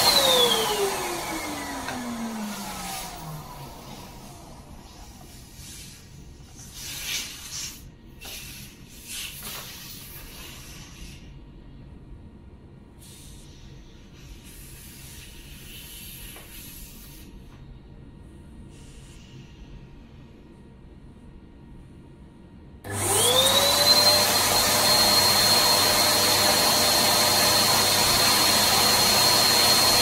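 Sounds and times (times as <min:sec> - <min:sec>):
air hissing out of balloon: 0:02.6 - 0:11.3, 0:13.0 - 0:17.5.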